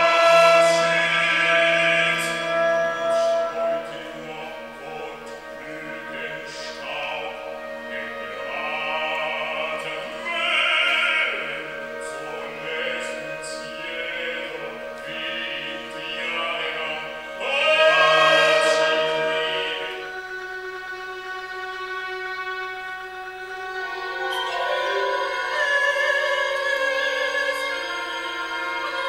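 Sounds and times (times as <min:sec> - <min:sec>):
operatic singing: 0:00.0 - 0:29.0
sustained orchestral tones: 0:00.0 - 0:29.0.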